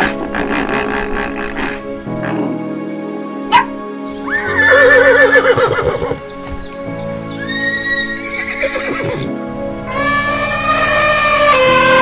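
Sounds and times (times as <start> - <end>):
background music with sustained tones: 0.0 - 12.0
horse whinnying: 4.3 - 6.3, 7.4 - 9.3.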